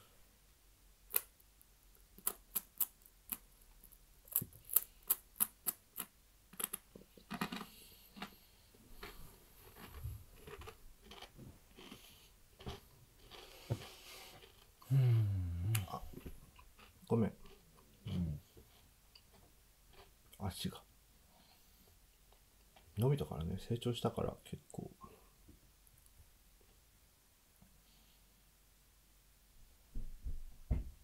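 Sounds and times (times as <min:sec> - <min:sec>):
crunchy snack being chewed: 0:02.2 - 0:08.4, 0:09.0 - 0:14.7.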